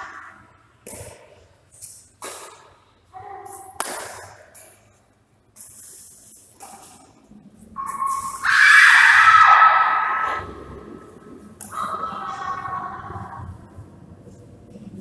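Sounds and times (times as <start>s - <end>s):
racket hitting shuttlecock: 2.2s - 2.7s, 3.5s - 4.8s.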